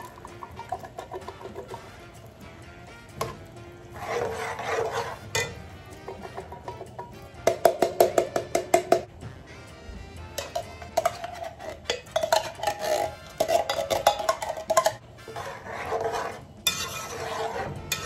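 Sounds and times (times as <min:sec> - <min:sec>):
spoon stirring liquid in a pot: 0:00.0 - 0:09.1, 0:10.4 - 0:18.0
metal spoon scraping a tin can: 0:03.2 - 0:07.7, 0:10.4 - 0:18.0.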